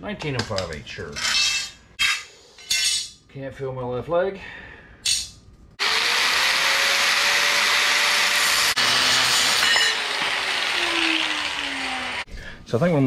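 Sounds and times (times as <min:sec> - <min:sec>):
angle grinder motor whine: 0:05.8 - 0:12.3
grinder cutting steel hiss: 0:05.8 - 0:12.3.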